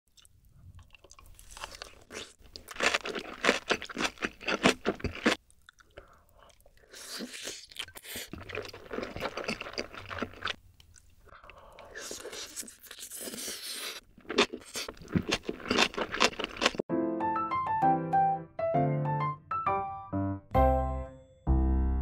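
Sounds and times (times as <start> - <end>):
wet crunchy chewing: 0.2 - 16.8.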